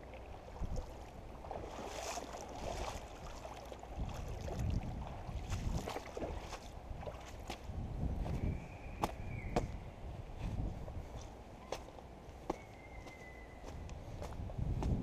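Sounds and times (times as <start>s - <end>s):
shallow rocky creek flowing: 0.0s - 9.2s
wind rumbling on microphone: 0.0s - 11.5s, 12.8s - 15.0s.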